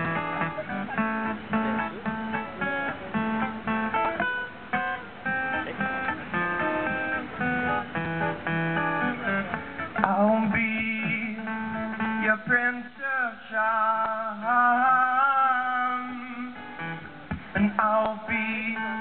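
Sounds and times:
acoustic guitar strummed and plucked: 0.0s - 19.0s
wordless singing with vibrato: 10.0s - 16.7s, 17.5s - 19.0s.

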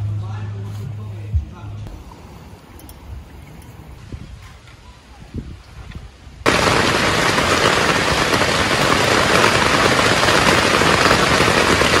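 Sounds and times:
heavy rain on tent fabric: 6.4s - 12.0s.

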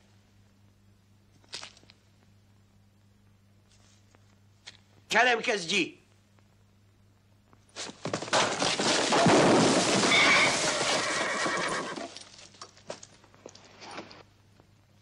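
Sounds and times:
horse whinnying: 10.0s - 12.2s.

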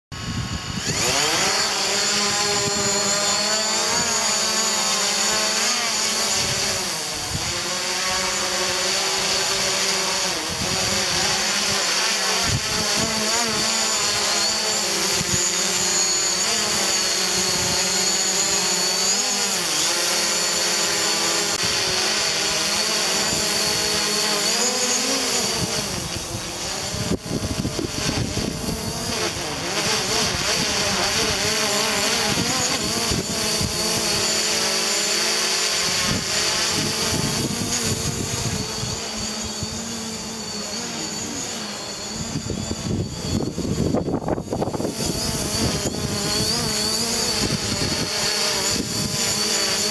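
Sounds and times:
drone motors whining: 0.2s - 49.9s.

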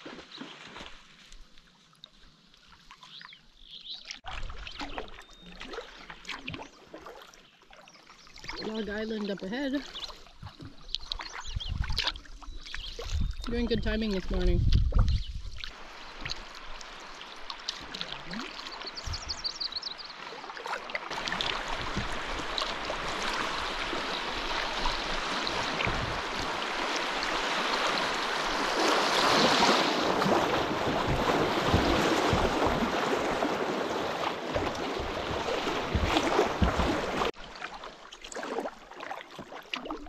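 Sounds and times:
river water rushing over rapids: 21.1s - 37.3s.

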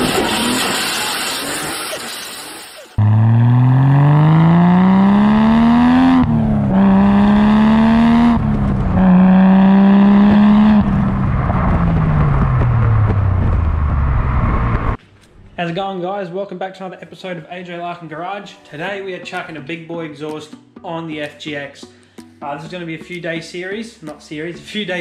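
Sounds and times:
gear upshifts: 0.0s - 15.0s
car engine accelerating: 3.0s - 15.0s.

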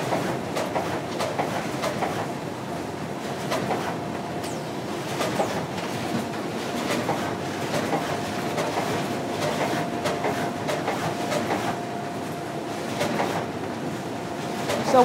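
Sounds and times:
machine clatter: 0.0s - 2.3s, 3.4s - 11.8s, 12.9s - 13.5s, 14.6s - 15.0s
faint machine whine: 2.5s - 15.0s
sharp mechanical clicks: 4.4s - 5.6s.

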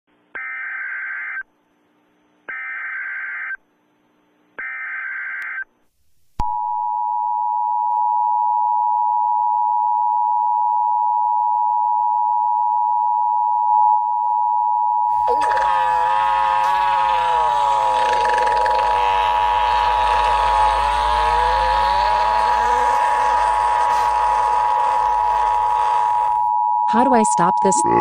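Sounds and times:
buzzy data bursts: 15.2s - 26.5s
two-tone attention signal: 27.5s - 28.0s.

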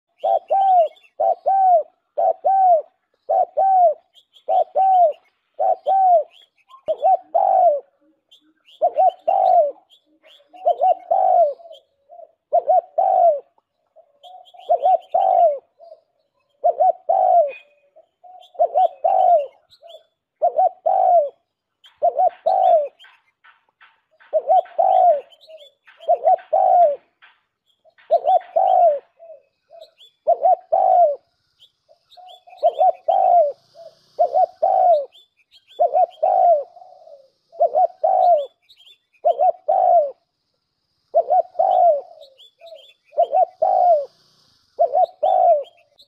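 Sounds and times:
pigeon cooing: 0.1s - 23.1s, 24.1s - 27.2s, 28.0s - 31.3s, 32.1s - 40.3s, 41.1s - 46.0s.

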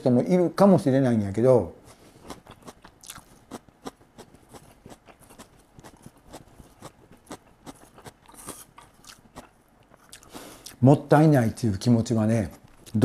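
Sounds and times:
person chewing crunchy cabbage: 1.8s - 10.8s.

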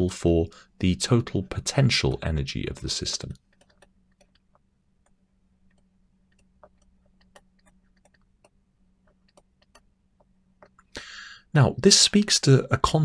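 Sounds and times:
faint steady hum: 0.0s - 13.0s
stylus tapping on tablet screen: 3.5s - 10.8s.

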